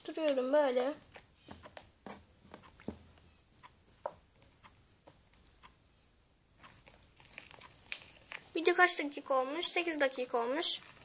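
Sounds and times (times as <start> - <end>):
plastic spoon stirring in bowl: 10.6 - 11.0.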